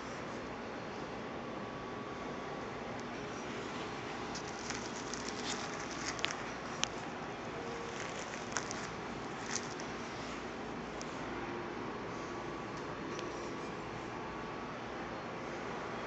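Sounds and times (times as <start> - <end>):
rustles: 3.6 - 10.5.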